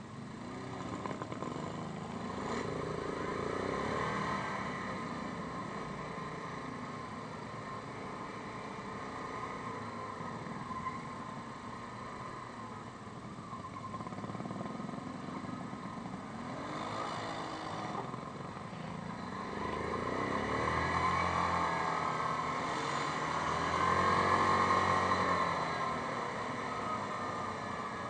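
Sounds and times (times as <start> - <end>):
atv engine revving: 19.2 - 28.0.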